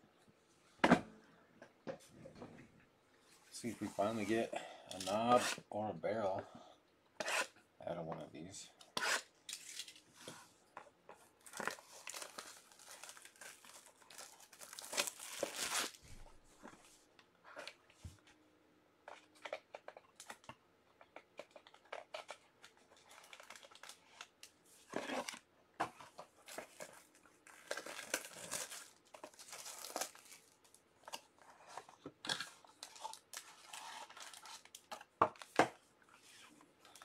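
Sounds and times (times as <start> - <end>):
plastic wrapping tearing and crumpling: 9.5 - 10.0, 11.4 - 16.2, 21.4 - 24.4, 26.4 - 31.3, 32.3 - 35.6.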